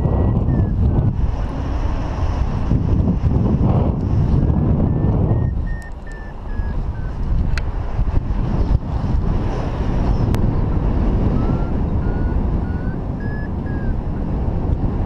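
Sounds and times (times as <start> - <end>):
wind rushing over microphone: 0.0 - 15.0
variometer beeping short tones: 4.9 - 7.2, 11.4 - 13.9.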